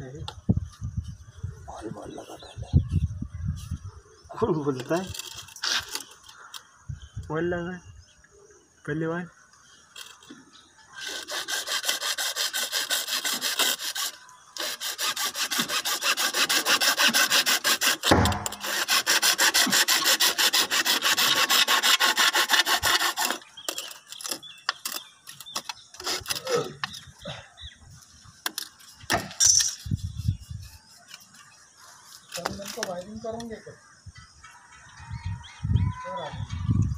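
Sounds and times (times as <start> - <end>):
hacksaw cutting plastic pipe: 11.0 - 27.0.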